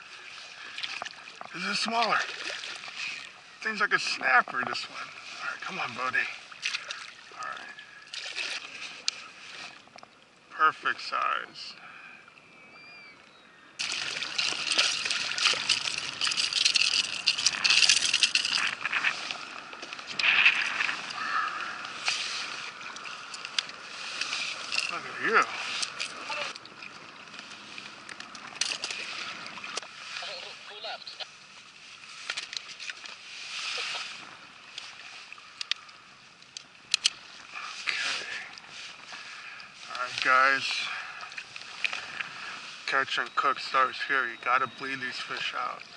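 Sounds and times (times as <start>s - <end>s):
water sloshing around kayak hull: 0.0s - 3.6s, 4.2s - 10.4s, 13.8s - 43.3s
water splashing: 0.1s - 10.2s, 13.8s - 43.9s
fish splashing in water: 13.8s - 24.8s.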